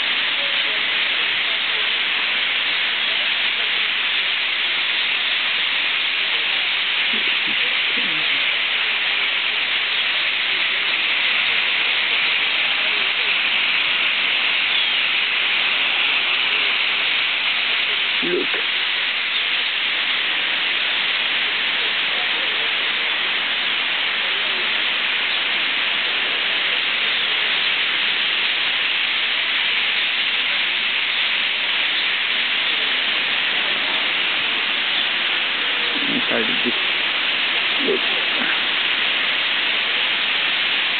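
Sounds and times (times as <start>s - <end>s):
flock of starlings calling: 14.6s - 20.3s, 31.0s - 39.6s.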